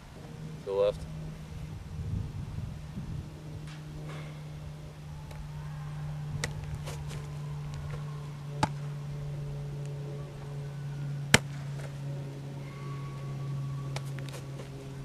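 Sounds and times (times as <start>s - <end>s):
steady low hum: 0.0s - 15.0s
football slapping into hands: 6.4s - 8.0s, 8.6s - 8.9s, 13.9s - 14.7s.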